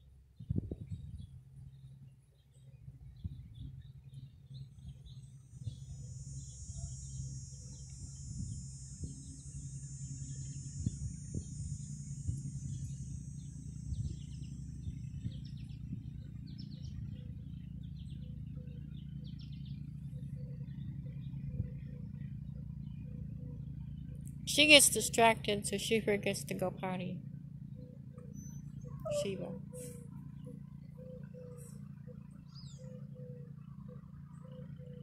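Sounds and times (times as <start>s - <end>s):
steady low hum: 0.0s - 35.0s
birds chirping: 1.2s - 35.0s
high buzzing trill: 5.5s - 15.7s.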